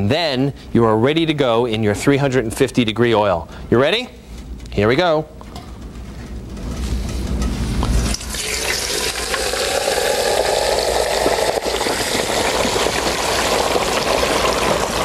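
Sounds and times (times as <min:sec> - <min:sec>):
frying oil bubbling and crackling: 0:08.1 - 0:15.0.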